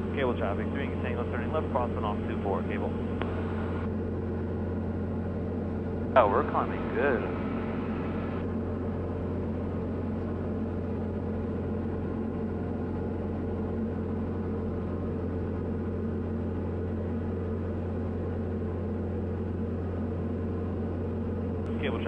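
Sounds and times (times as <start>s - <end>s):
light aircraft engine droning: 0.0s - 22.0s.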